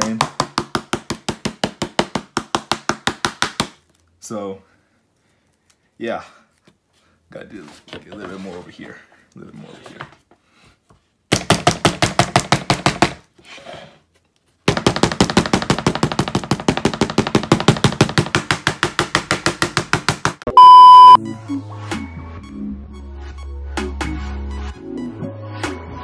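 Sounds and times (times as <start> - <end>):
steady test tone beep: 20.5 - 21.2.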